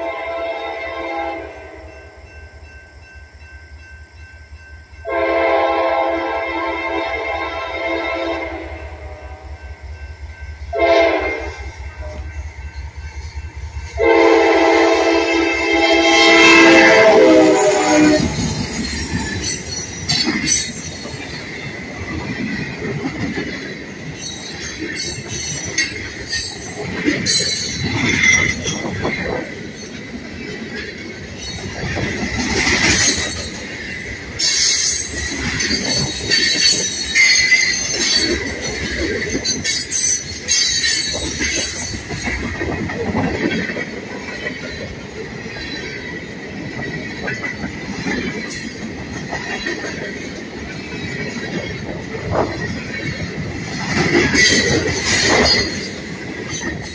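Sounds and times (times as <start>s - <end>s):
train wheels rumbling on rail: 0.0s - 56.9s
high-pitched wheel squeal: 34.4s - 38.4s.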